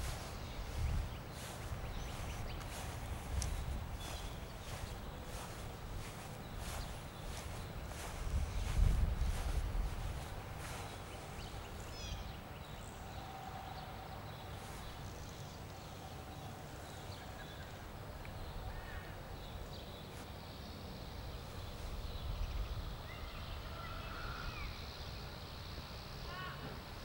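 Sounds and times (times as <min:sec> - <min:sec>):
wind rumble on microphone: 0:00.0 - 0:13.0, 0:21.6 - 0:24.7
faint bird chirps: 0:00.0 - 0:20.2.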